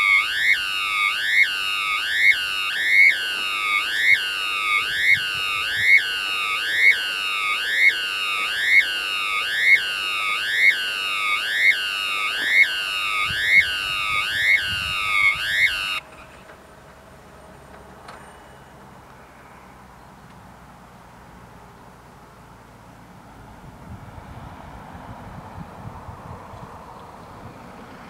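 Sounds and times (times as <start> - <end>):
level crossing warning bells: 0.0 - 16.0.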